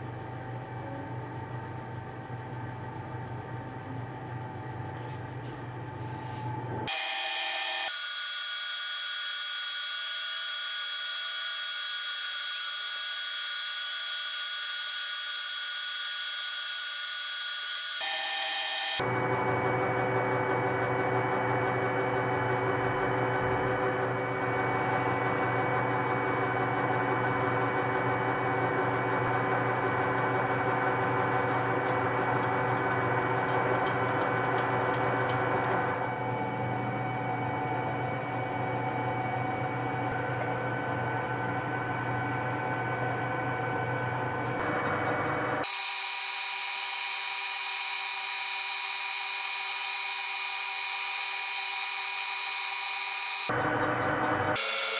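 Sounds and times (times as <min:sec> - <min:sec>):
lathe humming while drilling: 0:06.9 - 0:19.0, 0:19.8 - 0:37.6, 0:44.6 - 0:54.9
metal lathe whining: 0:06.9 - 0:19.0, 0:22.3 - 0:37.6, 0:44.5 - 0:54.9.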